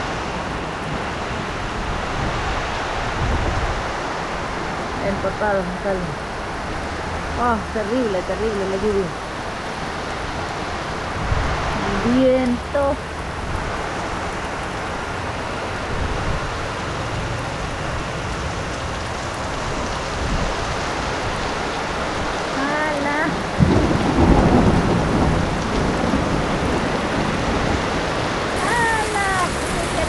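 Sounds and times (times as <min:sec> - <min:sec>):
heavy rain pouring: 0:00.0 - 0:30.0
loud thunderclap: 0:23.4 - 0:30.0.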